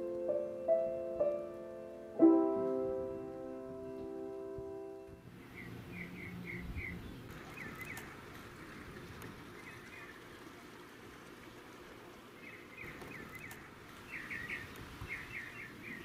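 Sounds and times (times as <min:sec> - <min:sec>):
small birds chirping: 0:03.2 - 0:10.6, 0:12.2 - 0:16.0.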